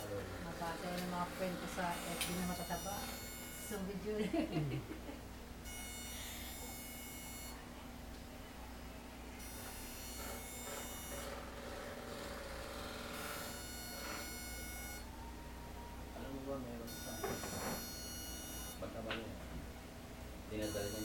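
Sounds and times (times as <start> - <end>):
high-pitched buzz: 0.0 - 4.1, 5.6 - 7.7, 9.4 - 18.9, 20.5 - 21.0
low electrical hum: 0.0 - 21.0.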